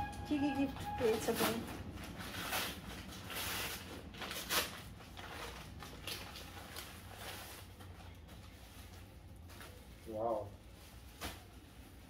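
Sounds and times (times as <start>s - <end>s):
plastic wrapping crinkling: 1.0s - 12.0s
paper packet tearing and rustling: 1.4s - 8.7s.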